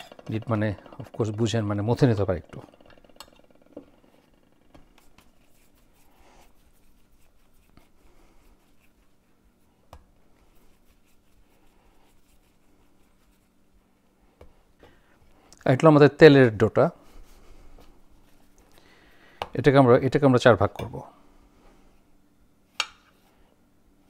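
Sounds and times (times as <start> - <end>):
hands kneading dough: 3.9 - 15.6.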